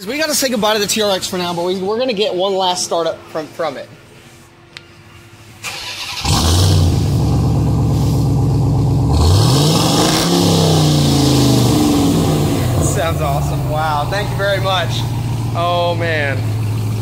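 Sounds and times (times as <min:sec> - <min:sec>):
engine cranking and starting: 0:05.6 - 0:07.5
engine revving: 0:05.6 - 0:17.0.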